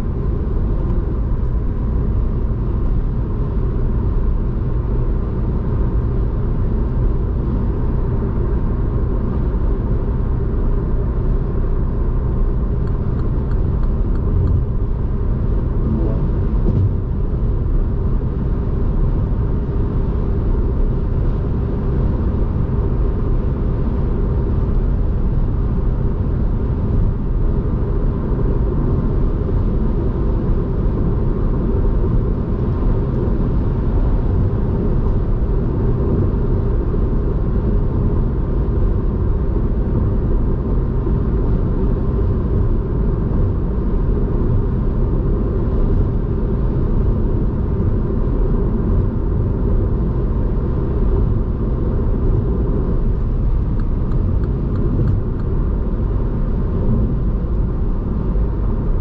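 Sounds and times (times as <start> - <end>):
car engine drone: 0.0 - 59.0
tyre and road rumble: 12.7 - 19.6.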